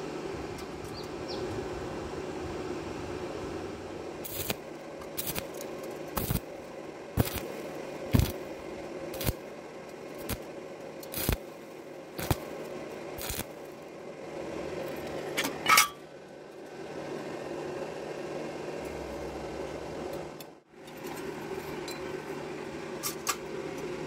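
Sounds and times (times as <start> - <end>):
steady low hum: 0.0 - 24.0
welding arc crackling: 4.2 - 15.2.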